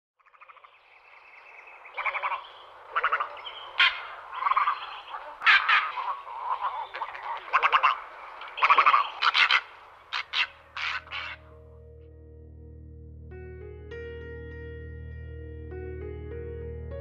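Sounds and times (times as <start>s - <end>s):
croaking animal calls: 0.2s - 0.8s, 1.9s - 11.5s.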